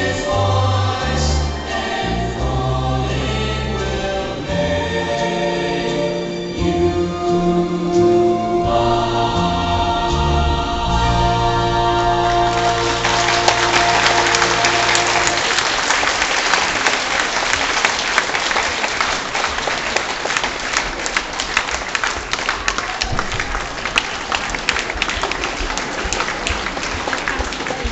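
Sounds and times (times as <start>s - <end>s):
dance music chord: 6.6s - 15.6s
audience applauding: 12.2s - 27.9s.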